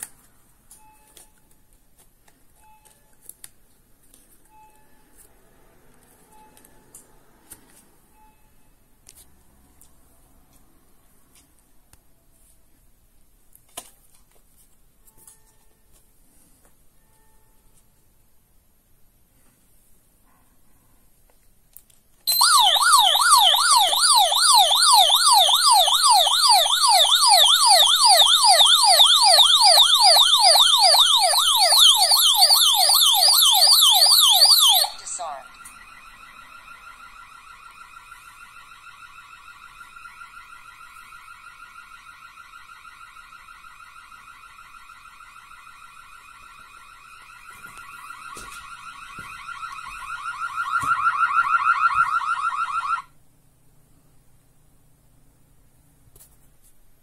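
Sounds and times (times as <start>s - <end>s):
alarm siren warbling: 22.3s - 53.1s
quiet steady tone: 34.8s - 52.3s.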